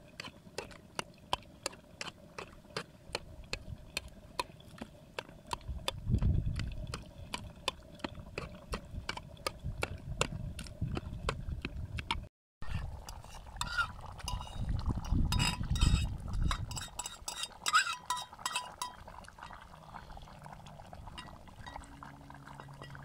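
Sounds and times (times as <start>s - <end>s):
fork scraping a plate: 12.6s - 19.0s.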